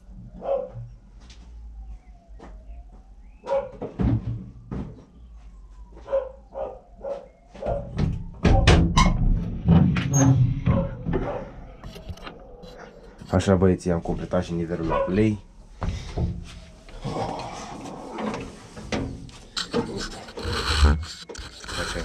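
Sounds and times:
dog barking: 0.4 - 0.8, 3.4 - 3.8, 6.0 - 7.9, 10.7 - 11.6, 14.9 - 15.2.

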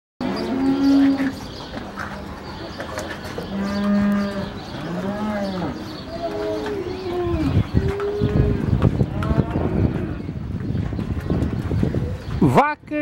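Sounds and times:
cattle mooing: 3.5 - 10.2.

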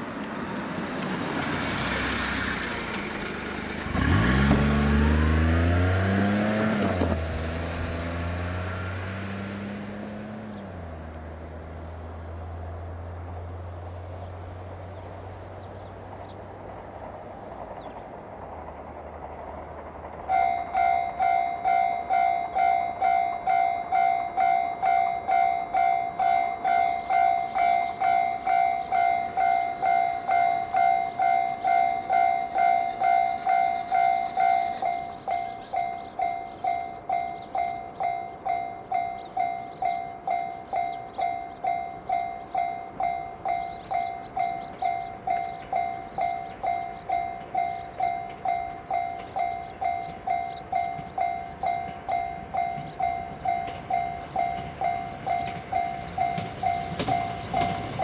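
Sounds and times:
vehicle engine humming: 0.0 - 58.0
level crossing alarm clanging: 20.3 - 58.0.

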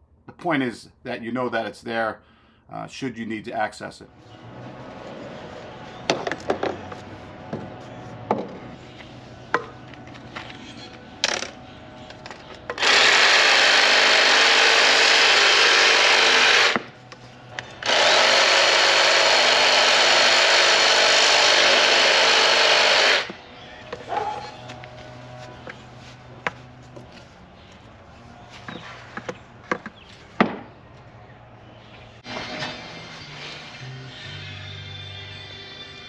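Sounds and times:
reciprocating saw cutting plastic pipe: 12.7 - 16.9.

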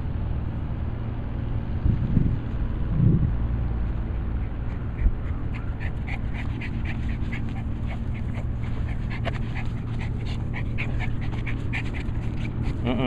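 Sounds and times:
dog panting fast: 4.0 - 13.0.

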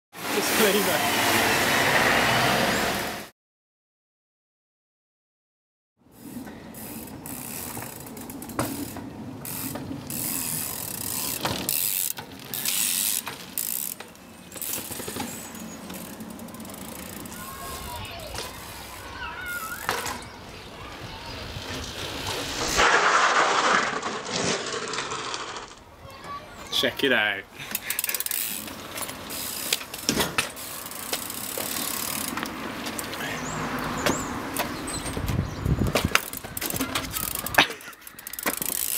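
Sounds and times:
bicycle freewheel ratcheting: 6.2 - 19.9, 27.6 - 33.1, 36.1 - 38.9
tyre noise on concrete: 6.3 - 26.4, 27.7 - 38.9
sharp knocks from bike: 29.7 - 32.4, 34.0 - 37.4, 38.3 - 38.9.

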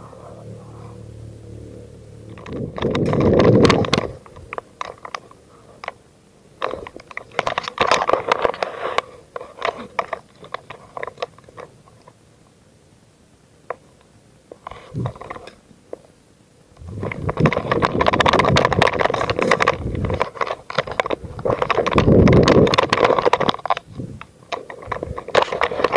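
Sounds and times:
loud dense rustling: 2.1 - 6.0, 16.8 - 25.9
gear clicking: 2.2 - 6.0, 16.8 - 25.9.

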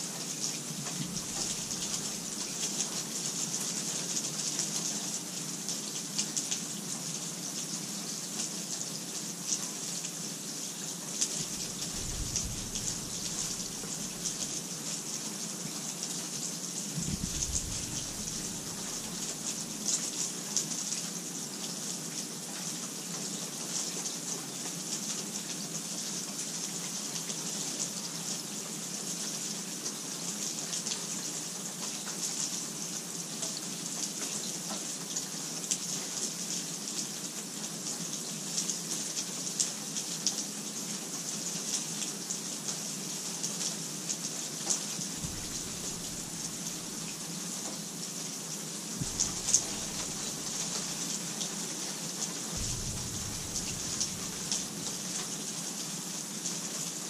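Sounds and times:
steady rainfall: 0.0 - 57.0
faint low rumble: 0.8 - 2.4, 11.4 - 14.6, 16.9 - 19.7, 45.2 - 47.3, 49.0 - 51.2, 52.5 - 55.2.

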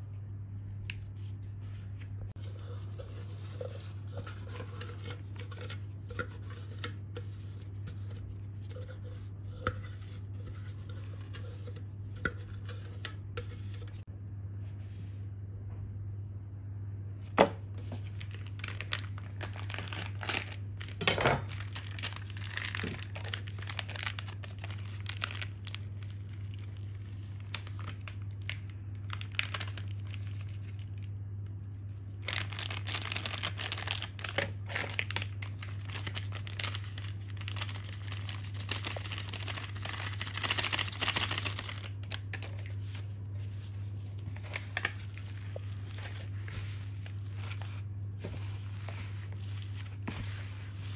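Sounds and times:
low hum: 0.0 - 32.3
packet crinkling and tearing: 17.9 - 31.1, 32.2 - 50.9.

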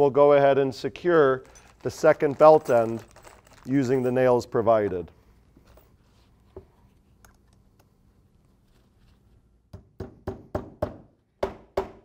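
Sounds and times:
hammer striking a nail: 9.7 - 12.0.

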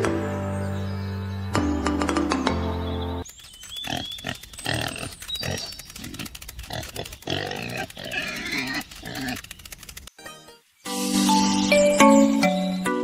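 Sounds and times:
pigs grunting: 3.8 - 9.6.

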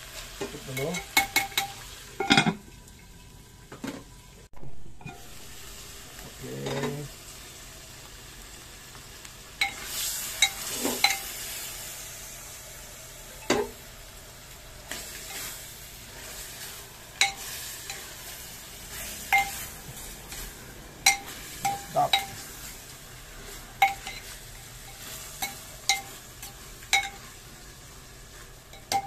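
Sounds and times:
chicken sizzling in a pot: 0.0 - 29.0
ladle clinking against pot: 21.1 - 22.4, 28.7 - 29.0.

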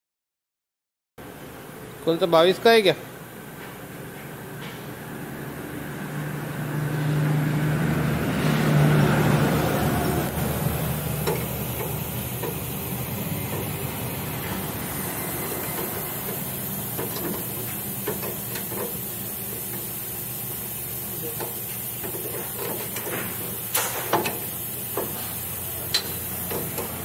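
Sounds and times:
mechanical hum and hiss: 1.2 - 27.0
wrench clicking on metal: 25.9 - 27.0.

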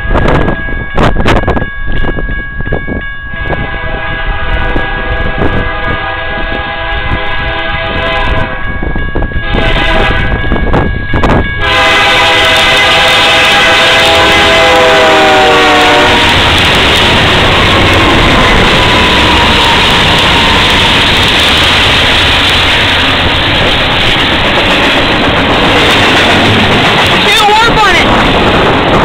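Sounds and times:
wind buffeting microphone: 0.0 - 29.0
locomotive air horn: 3.4 - 8.7, 9.4 - 10.4, 11.6 - 21.2.

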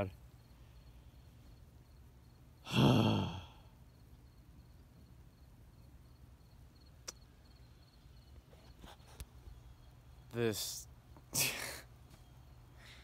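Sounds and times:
man sighing heavily: 2.6 - 3.7, 11.3 - 11.9.

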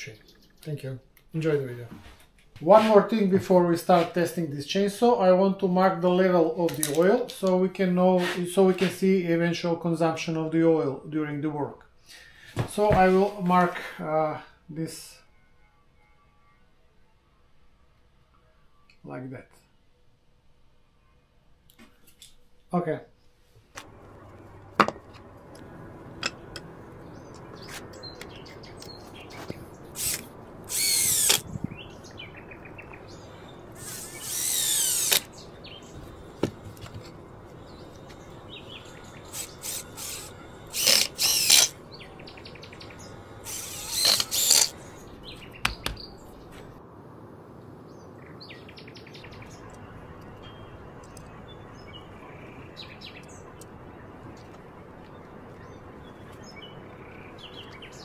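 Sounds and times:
birds chirping: 0.0 - 1.1, 23.8 - 46.8, 47.8 - 58.0
electric chainsaw running: 29.8 - 31.6, 33.0 - 41.8, 43.0 - 44.8.

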